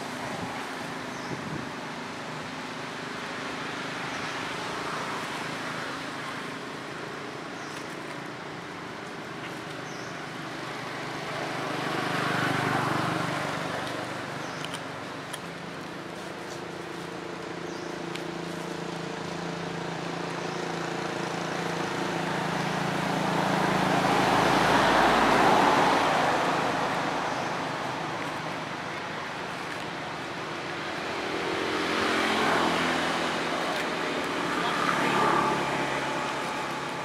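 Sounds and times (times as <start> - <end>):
steady engine hum: 0.0 - 37.0
vehicle passing by: 10.8 - 14.1, 21.7 - 37.0.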